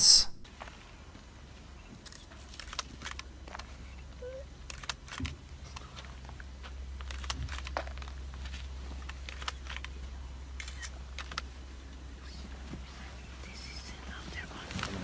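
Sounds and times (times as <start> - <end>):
low steady hum: 0.0 - 15.0
camera shutters clicking: 2.0 - 3.7, 4.6 - 5.4, 7.0 - 8.1, 9.0 - 10.0, 10.6 - 11.5.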